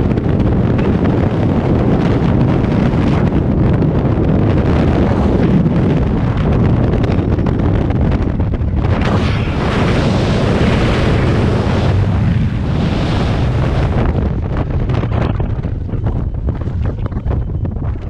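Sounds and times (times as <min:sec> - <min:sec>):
wind rushing over helmet camera: 0:00.0 - 0:18.0.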